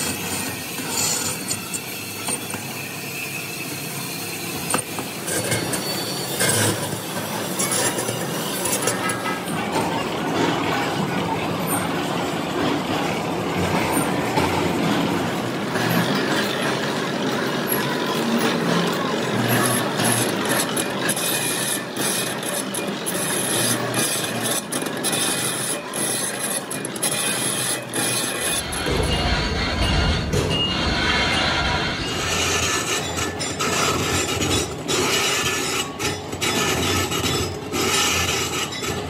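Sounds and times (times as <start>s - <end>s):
lathe tool scraping metal: 0.0s - 10.5s, 15.7s - 39.0s
deep rumble: 28.6s - 33.0s.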